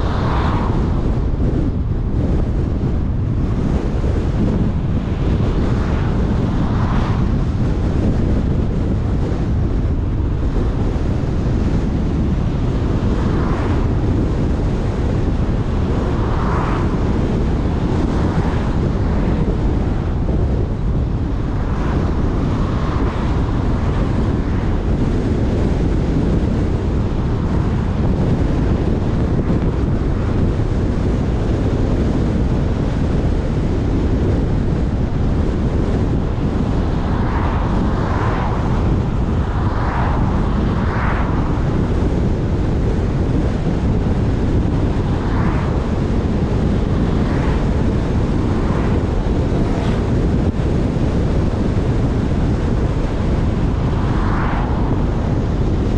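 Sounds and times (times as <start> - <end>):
car road noise at speed: 0.0 - 55.9
wind rushing over microphone: 0.0 - 55.9
oncoming traffic passing: 53.1 - 55.8.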